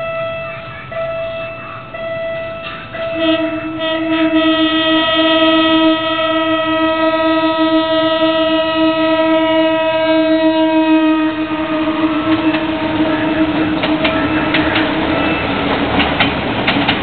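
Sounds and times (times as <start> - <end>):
train horn blast: 0.0 - 16.0
passing train rumble: 0.0 - 17.0
sharp rail clacks: 12.2 - 17.0.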